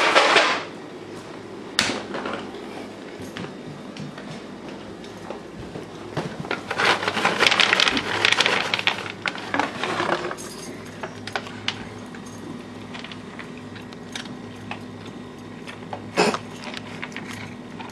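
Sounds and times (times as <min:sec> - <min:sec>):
low steady hum: 0:00.0 - 0:17.9
packaging rustling and rattling: 0:06.5 - 0:13.5.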